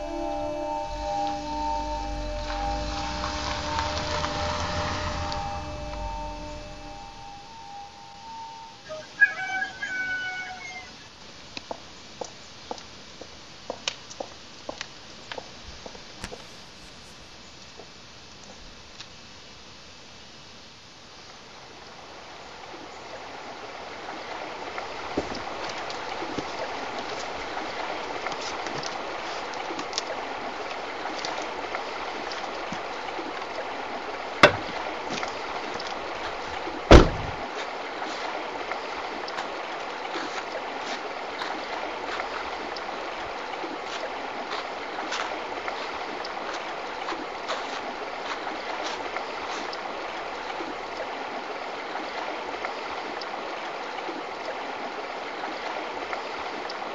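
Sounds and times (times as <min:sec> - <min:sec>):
river rushing over stones: 0:00.6 - 0:08.5, 0:23.2 - 0:53.7
small splashes and clicks: 0:24.7 - 0:33.8, 0:34.6 - 0:36.8, 0:37.4 - 0:56.9
sharp knocks: 0:34.4 - 0:34.8.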